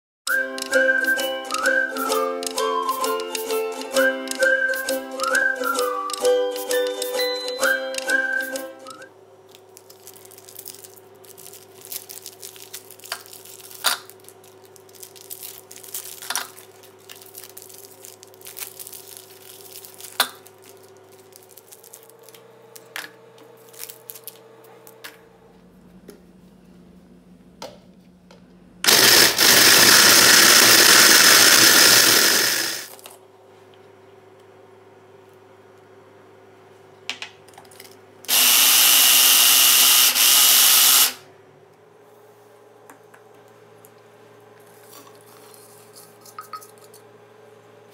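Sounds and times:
plastic wrappers crinkling: 0:09.5 - 0:22.9, 0:23.6 - 0:24.4
electric mini chopper grinding: 0:28.8 - 0:32.9, 0:38.3 - 0:41.2.

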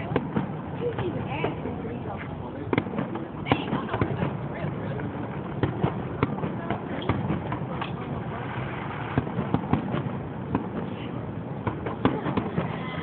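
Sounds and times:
fireworks bursting: 0:00.0 - 0:13.0.

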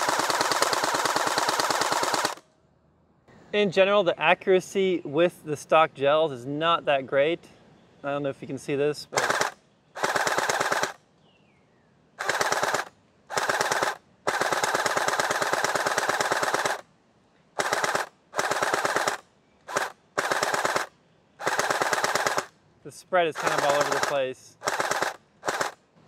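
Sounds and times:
toy blaster firing full auto: 0:00.0 - 0:02.4, 0:09.2 - 0:11.0, 0:12.2 - 0:16.8, 0:17.6 - 0:22.5, 0:23.4 - 0:25.8.

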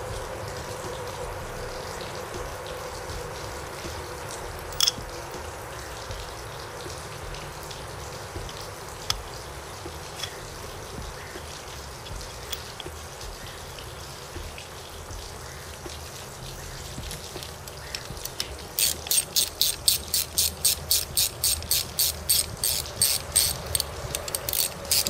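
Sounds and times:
socket ratchet clicking: 0:04.8 - 0:05.0, 0:17.4 - 0:25.0.

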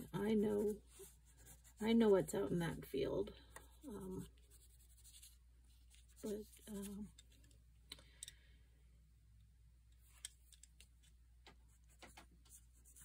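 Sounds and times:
pencils clicking and tapping: 0:10.0 - 0:13.0.

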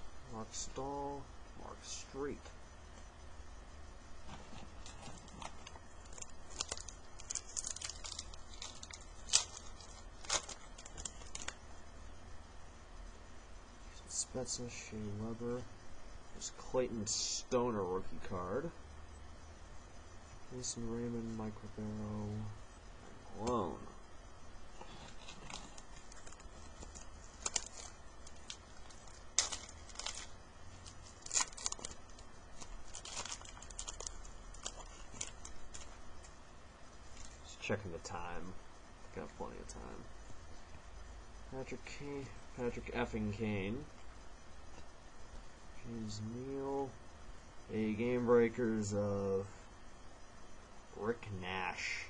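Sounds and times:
light crinkling: 0:04.2 - 0:11.9, 0:18.2 - 0:45.6
small clicks and snaps: 0:05.0 - 0:11.6.

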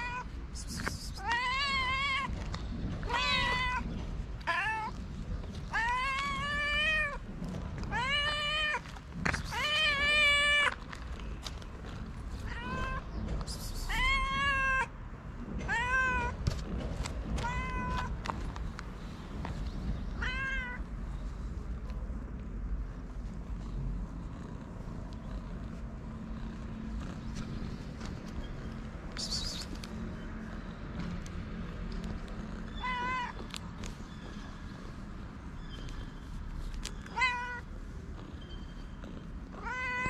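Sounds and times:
cats meowing: 0:00.0 - 0:10.9, 0:12.3 - 0:14.9, 0:15.5 - 0:16.5, 0:17.2 - 0:18.4, 0:19.9 - 0:20.9, 0:32.3 - 0:34.9, 0:36.3 - 0:40.0.

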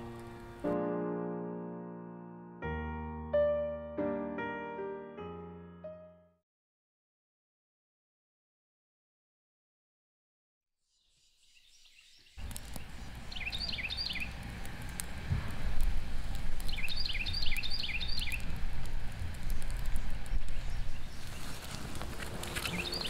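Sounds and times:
campfire crackling and popping: 0:00.0 - 0:00.8, 0:12.4 - 0:23.0
small bird chirping: 0:10.8 - 0:14.4, 0:16.6 - 0:18.5, 0:19.5 - 0:21.8, 0:22.4 - 0:23.0.

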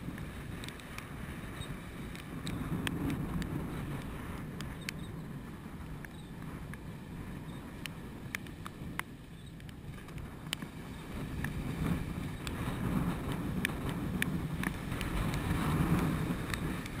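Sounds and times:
wind buffeting microphone: 0:00.0 - 0:17.0
sharp ticks: 0:00.1 - 0:05.2, 0:12.4 - 0:17.0.

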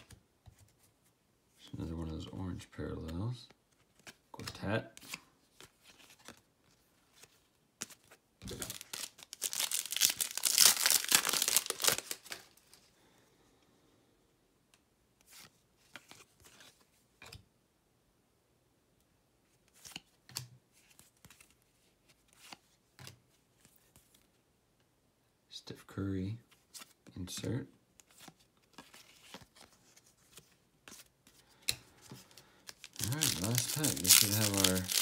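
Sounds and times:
wrapper tearing and crinkling: 0:08.5 - 0:12.6, 0:32.7 - 0:35.0.

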